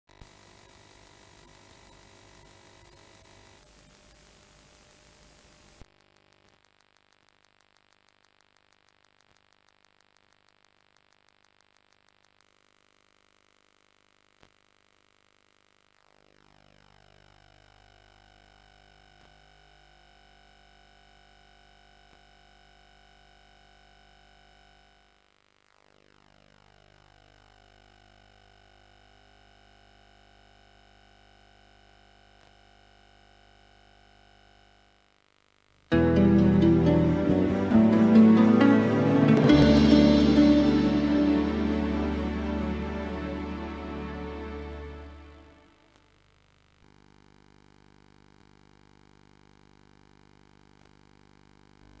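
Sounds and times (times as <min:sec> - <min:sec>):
faint tape playback hum and hiss: 0:00.1 - 0:52.0
faint click: 0:05.8 - 0:12.6, 0:50.5 - 0:51.2.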